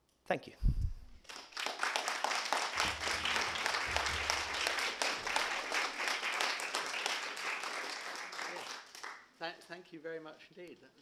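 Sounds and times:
audience applauding: 0:01.2 - 0:09.3.

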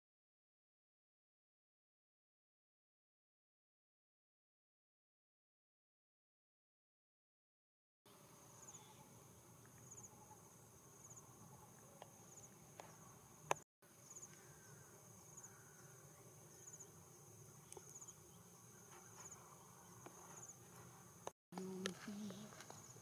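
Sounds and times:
crickets chirping: 0:08.1 - 0:23.0.

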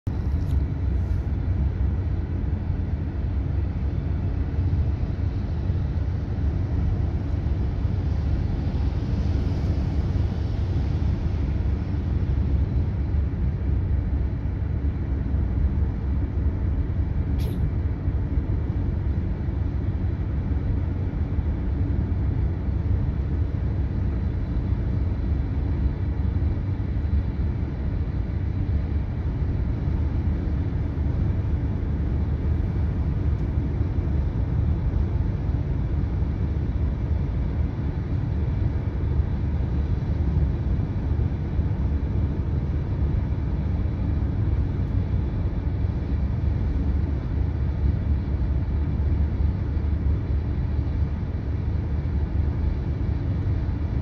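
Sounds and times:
car road and engine rumble: 0:00.0 - 0:54.0
hiss: 0:17.4 - 0:17.6
short click: 0:17.4 - 0:17.6.

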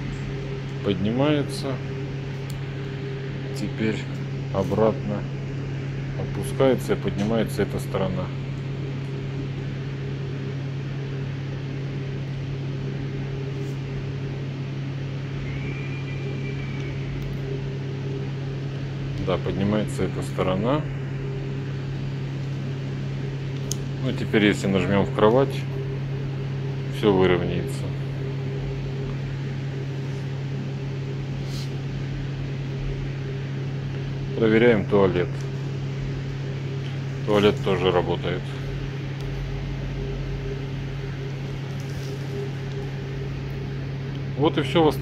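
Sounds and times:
bed actuator motors humming: 0:00.0 - 0:45.0
faint high whine: 0:00.0 - 0:45.0.

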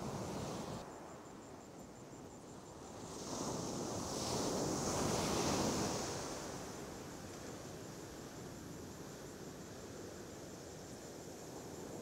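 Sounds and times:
ocean surf on sandy beach: 0:00.0 - 0:01.1.

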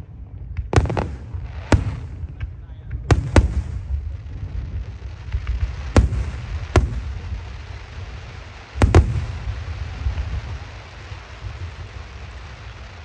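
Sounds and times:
continuous low rumble: 0:00.0 - 0:13.0
firework shells bursting: 0:00.6 - 0:04.1, 0:05.6 - 0:07.4, 0:08.8 - 0:10.3.

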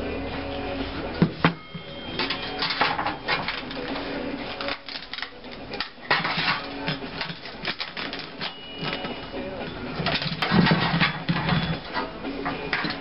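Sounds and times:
sheet steel clanking and scraping: 0:02.1 - 0:03.9, 0:04.7 - 0:08.6, 0:09.9 - 0:13.0.

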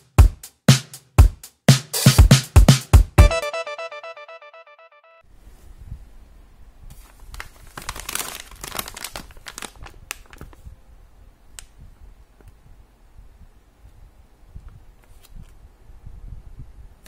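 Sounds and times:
plastic bag crinkling: 0:07.0 - 0:10.6.

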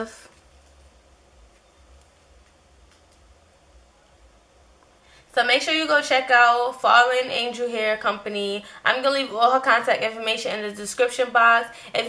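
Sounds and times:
low hum: 0:00.0 - 0:05.5
faint steady hiss: 0:00.0 - 0:12.0.

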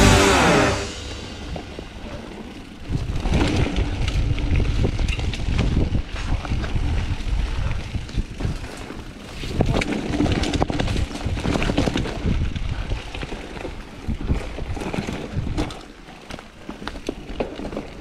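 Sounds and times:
tyres rumbling over dirt: 0:00.0 - 0:18.0
wind buffeting microphone: 0:01.2 - 0:15.8
bike rattling and clicking: 0:01.4 - 0:18.0.

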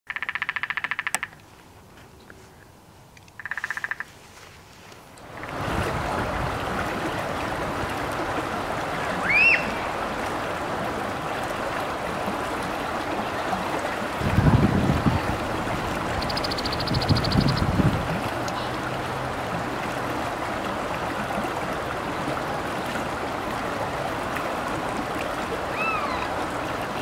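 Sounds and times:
woodpecker drumming: 0:00.1 - 0:01.4, 0:03.4 - 0:04.1, 0:16.1 - 0:17.7
stream rippling: 0:00.2 - 0:27.0
bird chirp: 0:16.2 - 0:17.6.

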